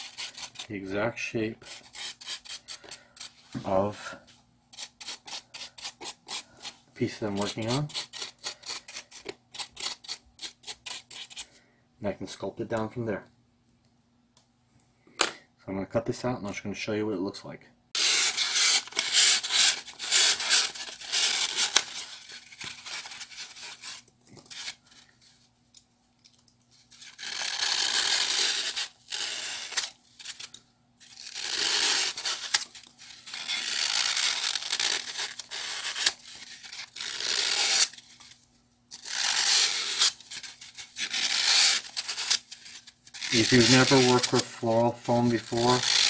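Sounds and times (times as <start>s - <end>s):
blade scraping floral foam: 0.0s - 1.0s, 1.6s - 11.5s, 18.0s - 25.0s, 39.0s - 46.0s.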